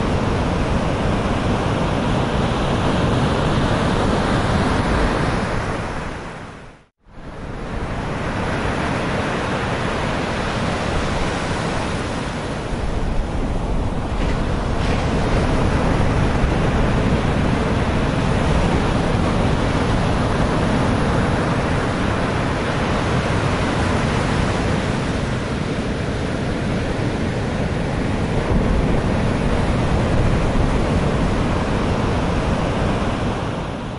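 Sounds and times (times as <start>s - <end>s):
sea waves breaking against wall: 8.2s - 33.9s.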